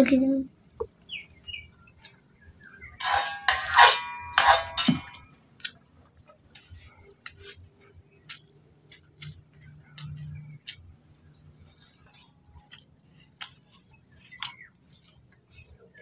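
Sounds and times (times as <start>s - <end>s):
metal bowl and plate clinking: 2.9s - 5.3s
fingers ticking on a plate: 6.5s - 16.0s.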